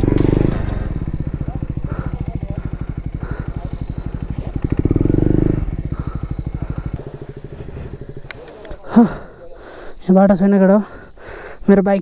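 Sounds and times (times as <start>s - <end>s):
motorcycle engine puttering: 0.0s - 9.4s.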